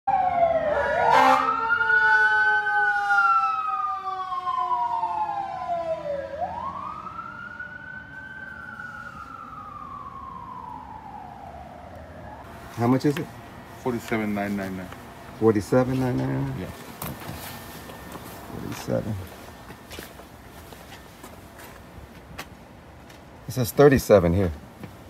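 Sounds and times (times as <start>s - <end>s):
emergency siren wailing: 0.1s - 20.1s.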